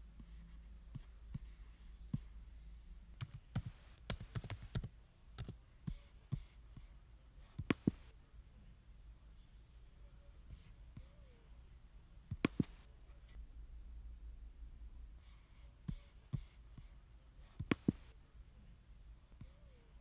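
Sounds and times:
laptop keyboard typing: 0:03.2 - 0:06.0, 0:07.6 - 0:08.1, 0:12.3 - 0:12.9, 0:17.6 - 0:18.1.

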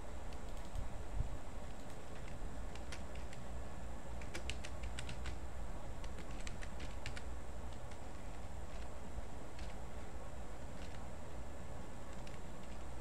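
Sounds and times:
steady low hum: 0:00.0 - 0:13.0
keyboard typing: 0:00.3 - 0:00.8, 0:01.7 - 0:03.4, 0:04.2 - 0:05.4, 0:06.0 - 0:08.9, 0:09.5 - 0:09.8, 0:10.7 - 0:11.1, 0:12.1 - 0:13.0.

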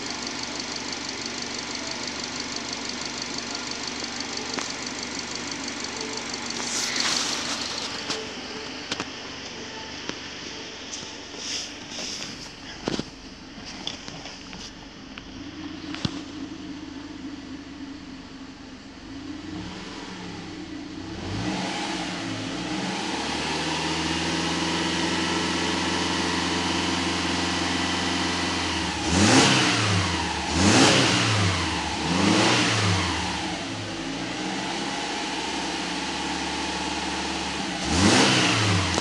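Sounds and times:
car engine revving: 0:00.0 - 0:39.0.

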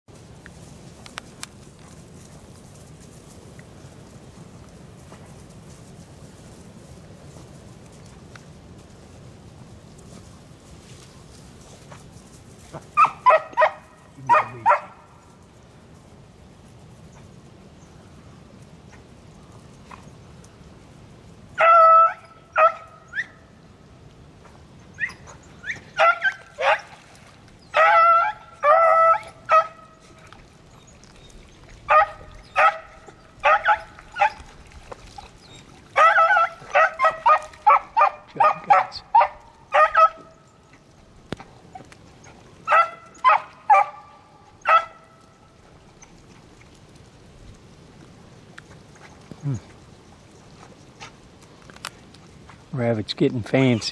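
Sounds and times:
hounds baying: 0:12.7 - 0:15.0, 0:21.6 - 0:23.4, 0:24.9 - 0:27.0, 0:27.7 - 0:30.9, 0:31.8 - 0:34.5, 0:35.2 - 0:40.4, 0:41.7 - 0:45.3.

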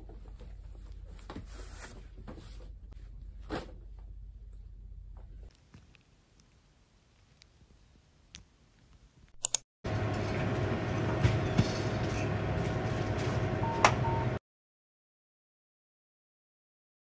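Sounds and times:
sharp click: 0:09.3 - 0:09.6
coffee machine whirring: 0:09.9 - 0:14.1.

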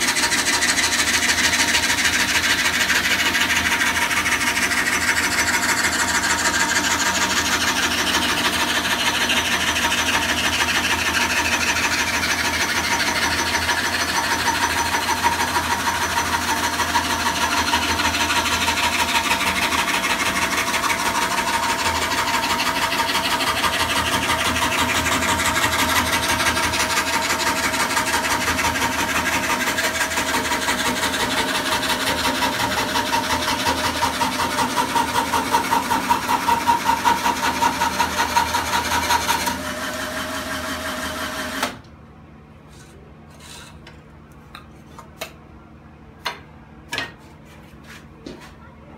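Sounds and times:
saw blade rasping through wood: 0:00.0 - 0:41.6, 0:42.7 - 0:43.9.

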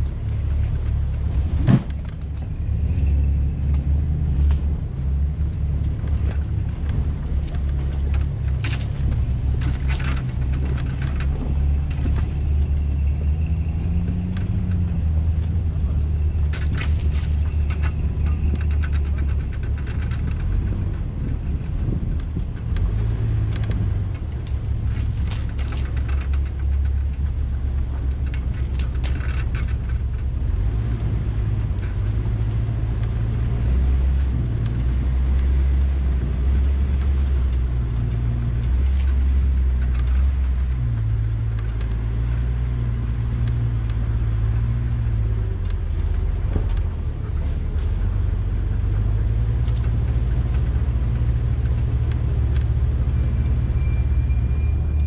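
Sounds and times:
suv engine running low: 0:00.0 - 0:55.0
vehicle knocks and rattles: 0:00.0 - 0:55.0.

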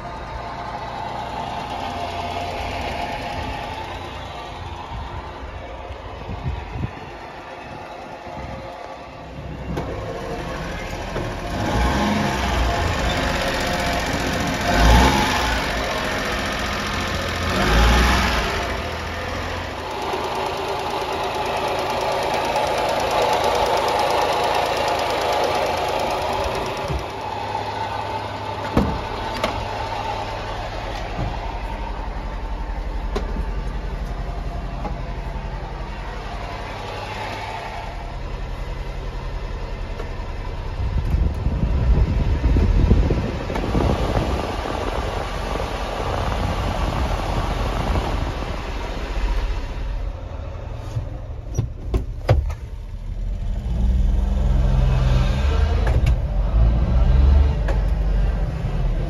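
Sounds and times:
truck engine idling: 0:00.0 - 0:59.0
low rumble: 0:26.7 - 0:51.5.

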